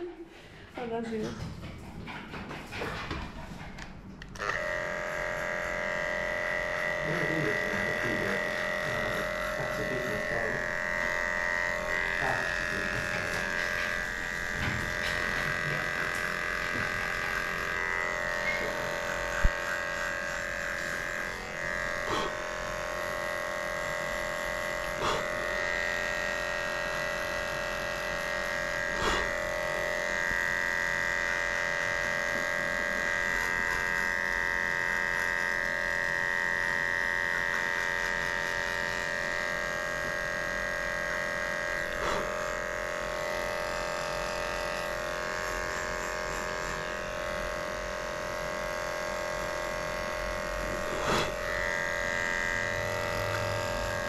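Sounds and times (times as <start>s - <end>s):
electric dog clippers humming: 0.0s - 54.0s.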